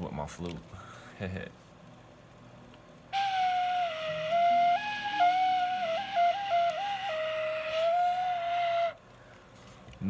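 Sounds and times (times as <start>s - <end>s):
flute melody: 3.1s - 9.0s.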